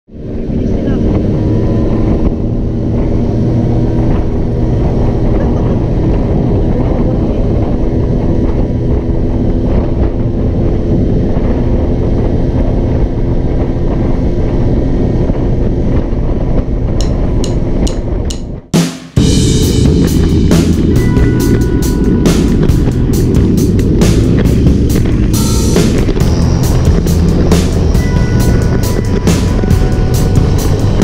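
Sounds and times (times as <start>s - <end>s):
wind buffeting microphone: 0.1s - 31.0s
scooter engine running: 19.2s - 31.0s.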